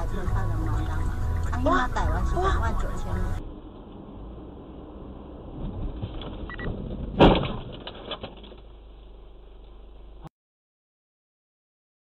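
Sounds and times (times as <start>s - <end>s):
car engine and road noise: 0.0s - 10.3s
car collision bang: 5.4s - 8.8s
clicks and rattles: 6.0s - 8.7s.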